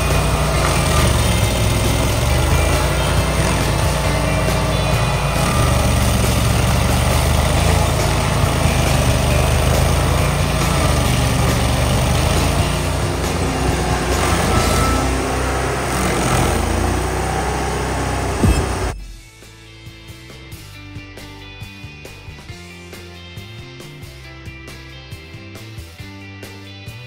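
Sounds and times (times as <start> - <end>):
cutter wheel grinding stump: 0.0 - 19.0
stump grinder engine droning: 0.0 - 19.0.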